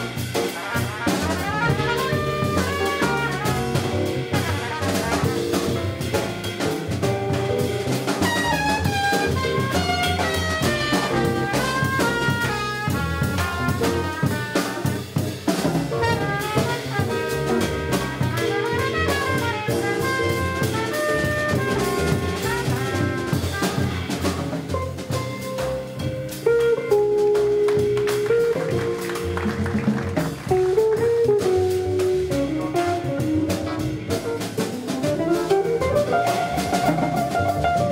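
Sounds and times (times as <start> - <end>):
trumpet playing quick runs: 0.0 - 26.9, 27.6 - 37.9
drum kit cymbals: 0.0 - 29.4, 30.2 - 37.9
upright bass walking: 0.0 - 37.9
guitar: 23.7 - 37.9.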